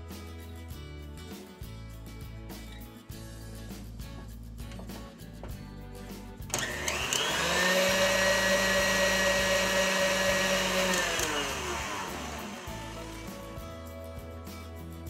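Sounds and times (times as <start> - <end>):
stand mixer motor whirring: 6.5 - 13.5.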